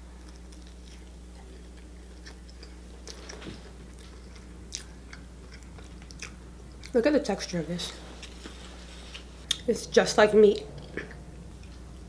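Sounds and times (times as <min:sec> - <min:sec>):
person chewing food: 0:00.0 - 0:07.0, 0:08.0 - 0:09.7, 0:10.6 - 0:12.0
low electrical hum: 0:00.0 - 0:12.0.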